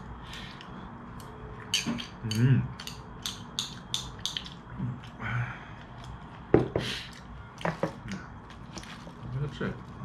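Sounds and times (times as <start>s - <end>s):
chopsticks clicking on bowl: 2.0s - 4.6s.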